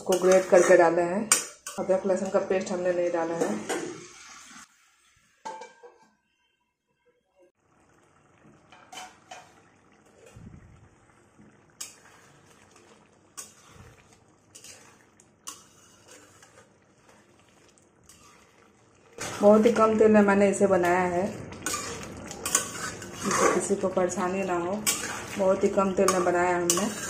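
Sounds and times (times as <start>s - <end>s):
metal spatula scraping metal pan: 0.0s - 4.7s, 11.8s - 27.0s.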